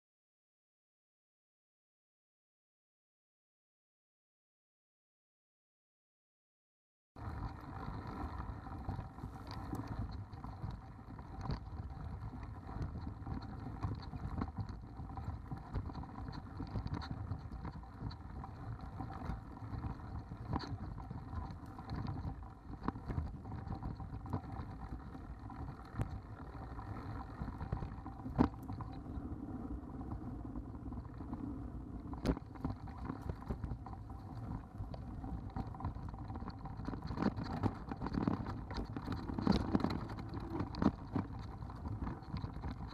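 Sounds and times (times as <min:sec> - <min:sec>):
bike rattling over rocks: 0:32.1 - 0:42.9.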